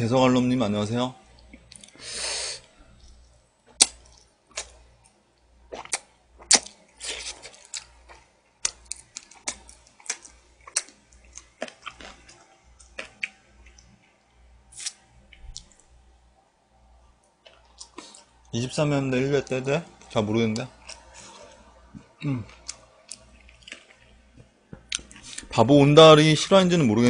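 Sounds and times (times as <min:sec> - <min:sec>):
wet mouth chewing: 0:05.7 - 0:14.0, 0:22.5 - 0:24.2.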